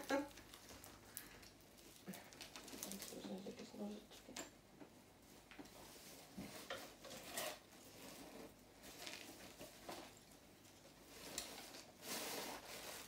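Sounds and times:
wrapping rustling: 0:00.0 - 0:04.2, 0:05.2 - 0:13.0.

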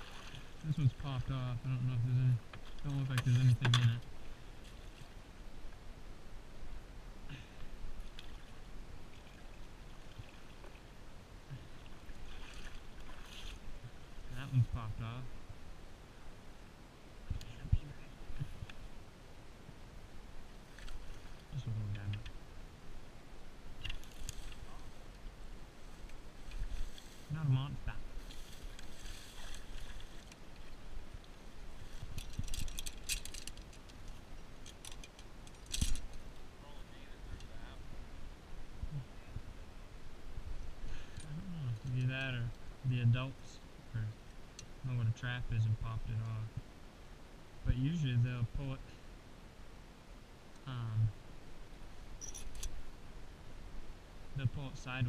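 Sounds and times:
small soft splashes: 0:00.0 - 0:00.7, 0:08.0 - 0:10.9, 0:11.5 - 0:13.9
metal trap clinking and rattling: 0:32.2 - 0:33.8, 0:34.6 - 0:36.2, 0:52.2 - 0:52.7.

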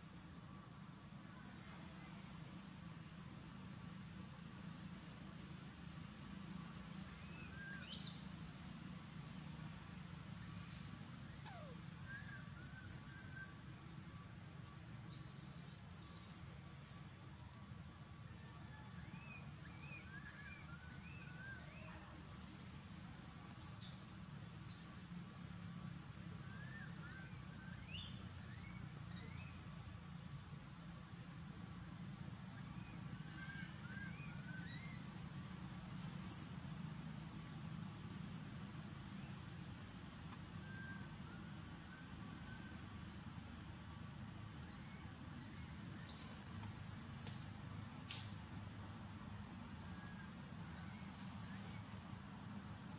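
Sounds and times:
insect drone: 0:00.0 - 0:52.9
small birds chirping: 0:10.6 - 0:13.5, 0:44.7 - 0:47.9.

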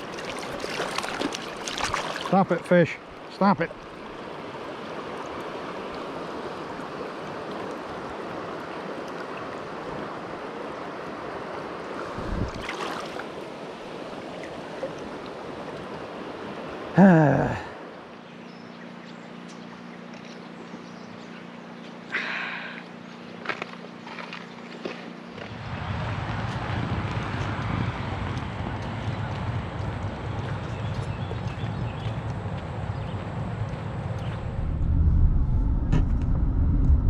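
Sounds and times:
stream rushing: 0:00.0 - 0:18.1.

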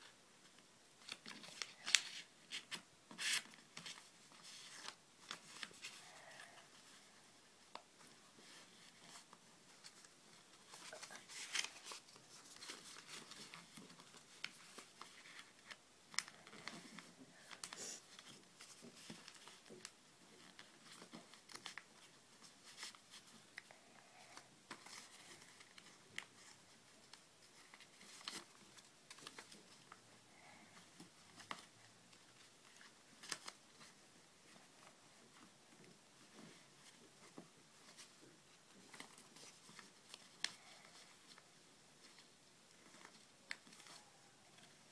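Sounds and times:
paper crackles: 0:01.0 - 0:07.0, 0:08.0 - 0:35.5
paper rustling and crinkling: 0:01.0 - 0:44.9.

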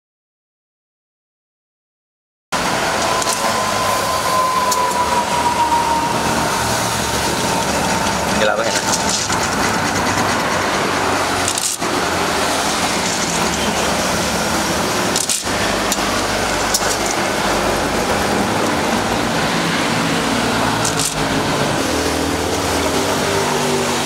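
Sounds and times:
motorized grinder running: 0:06.2 - 0:24.0.

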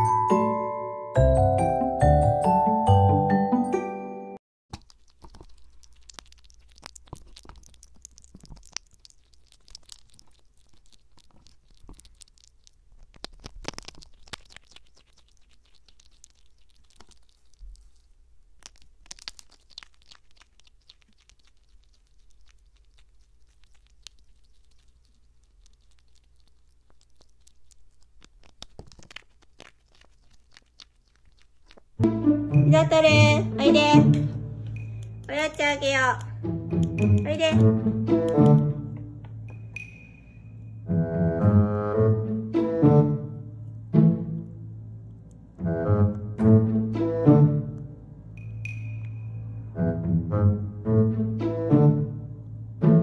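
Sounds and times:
animal chewing and crunching food: 0:04.7 - 0:32.0, 0:34.2 - 0:38.8.

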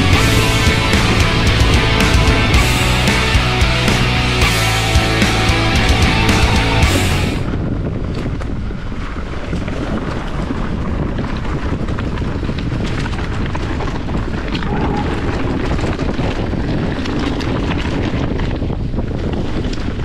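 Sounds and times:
bike tyres rumbling over ground: 0:00.0 - 0:20.0
wind rushing over microphone: 0:05.7 - 0:20.0
bike frame rattling and clicking: 0:08.0 - 0:20.0.

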